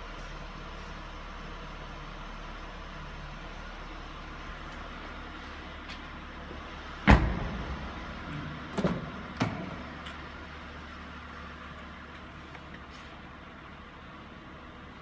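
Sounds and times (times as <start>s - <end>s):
steady low hum: 0.0s - 15.0s
car door shutting thud: 7.0s - 8.0s.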